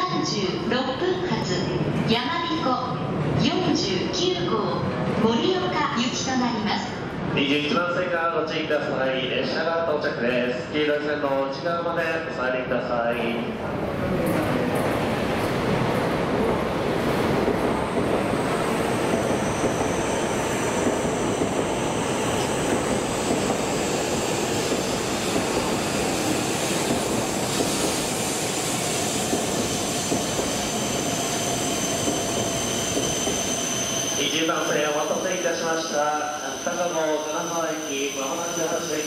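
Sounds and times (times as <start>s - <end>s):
train wheels rushing: 14.0s - 39.0s
high brake squeal: 30.7s - 39.0s.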